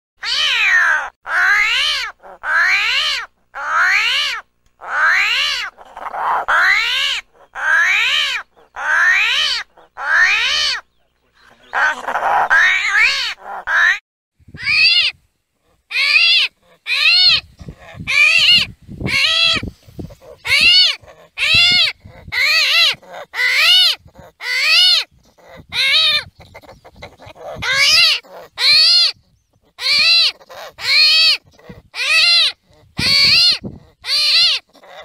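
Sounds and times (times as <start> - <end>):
armadillo high wavering cries: 0.2 - 35.0.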